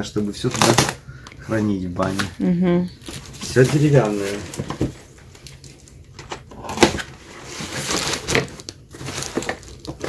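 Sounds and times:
cardboard box rustling and scraping: 3.1 - 5.0, 6.9 - 10.0.

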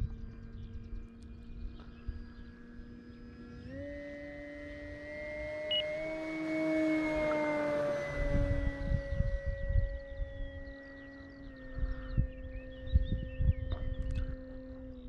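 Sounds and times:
low rumbling: 0.0 - 15.0
model plane motor and propeller whining: 0.0 - 15.0.

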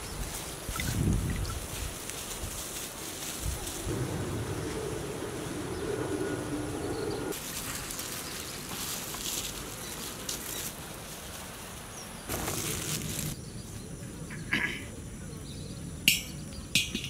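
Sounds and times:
low drone: 3.9 - 7.4.

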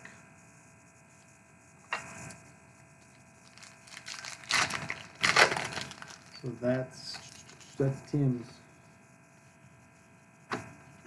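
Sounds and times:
cards rustling and crinkling: 3.4 - 7.8.

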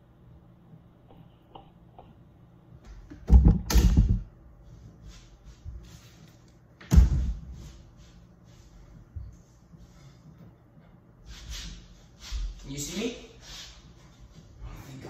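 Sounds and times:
loud thumps: 3.1 - 4.3, 6.9 - 7.5.

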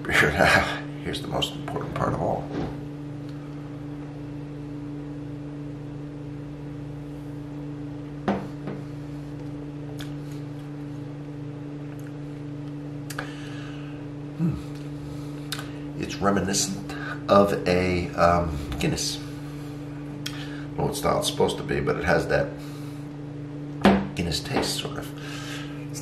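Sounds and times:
steady low hum: 0.0 - 26.0
soft knock: 8.2 - 8.8.

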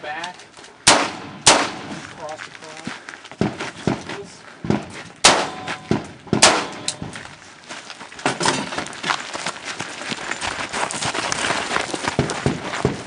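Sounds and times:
gunshots: 0.8 - 2.0, 4.7 - 7.2
shuffling footsteps: 1.8 - 13.0.

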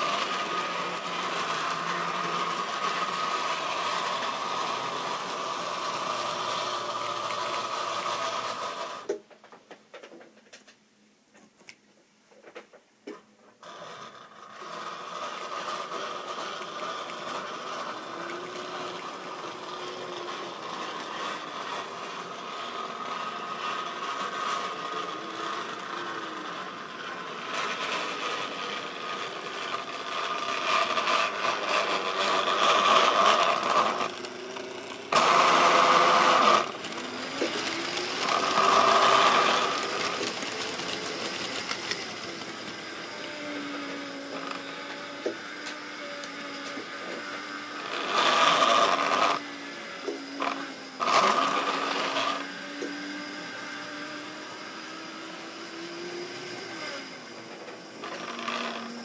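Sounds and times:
electric motor whine: 0.0 - 9.1, 13.6 - 59.0
wheels clicking along track: 14.6 - 44.0.

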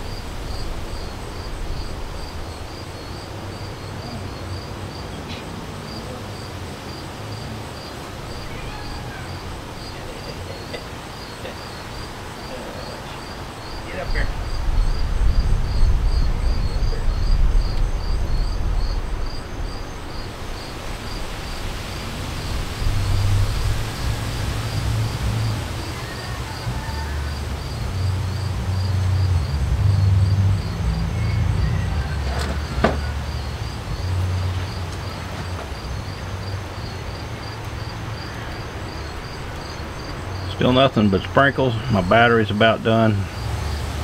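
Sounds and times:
gusty wind on microphone: 0.0 - 4.6, 13.2 - 32.8
insects chirping: 0.0 - 44.0.

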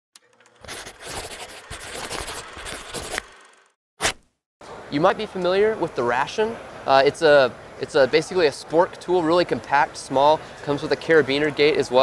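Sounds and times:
pencil scribbling on paper: 0.7 - 3.2.

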